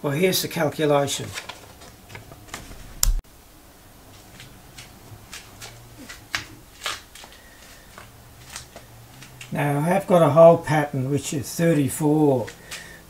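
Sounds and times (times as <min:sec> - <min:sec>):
faint handling clicks and rustles: 0:12.4 - 0:13.0.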